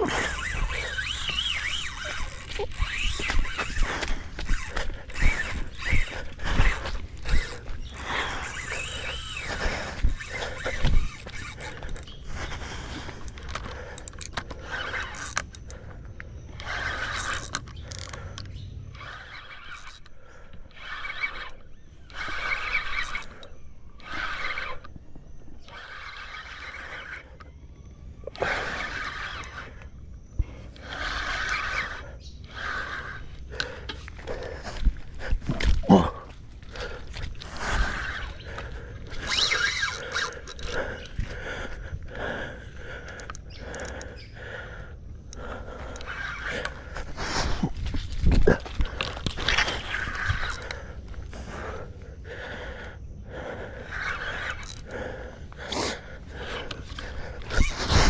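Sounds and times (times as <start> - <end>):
rod and reel handling clicks: 0.0 - 27.5, 28.2 - 41.8, 43.0 - 44.3, 45.3 - 51.8, 53.8 - 58.0
fishing reel whirring: 0.0 - 58.0.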